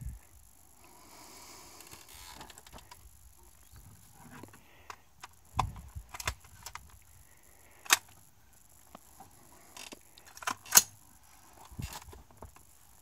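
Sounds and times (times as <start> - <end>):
sharp rifle clicks: 4.8 - 7.0, 7.8 - 8.2, 9.8 - 11.0.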